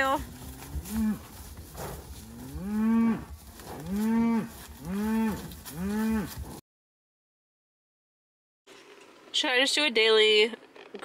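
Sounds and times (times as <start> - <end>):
cattle mooing: 0.0 - 6.6.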